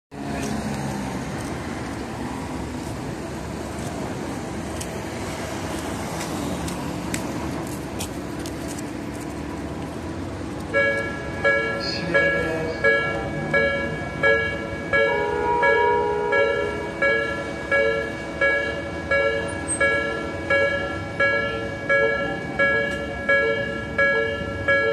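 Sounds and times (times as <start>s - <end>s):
road traffic hum: 0.1s - 24.9s
level crossing warning bell: 10.7s - 24.9s.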